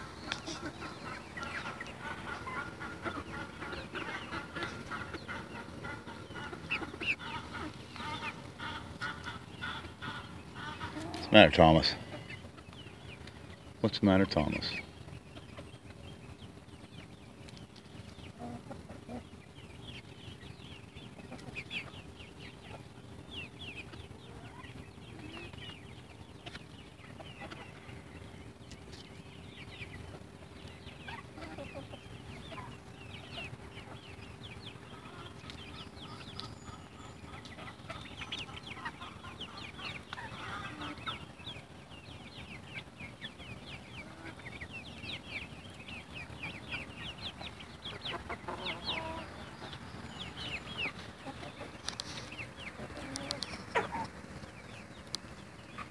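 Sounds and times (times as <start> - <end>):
chickens and turkey calling: 0.0 - 55.9.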